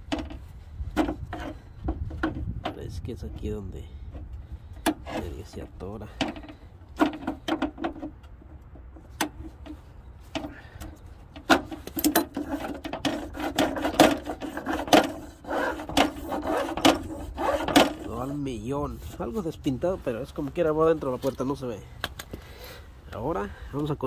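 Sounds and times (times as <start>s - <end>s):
metal clicks and rattles: 10.4s - 15.2s.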